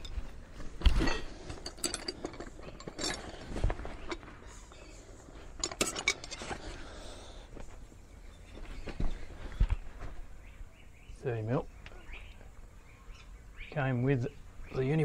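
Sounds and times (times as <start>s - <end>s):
metal spanners clinking: 0.0s - 4.7s, 5.5s - 6.6s.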